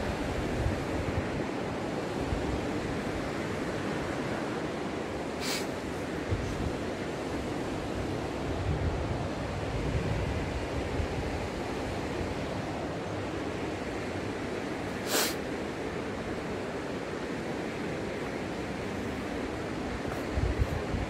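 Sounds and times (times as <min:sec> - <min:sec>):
short hiss: 0:05.4 - 0:05.7, 0:15.0 - 0:15.4.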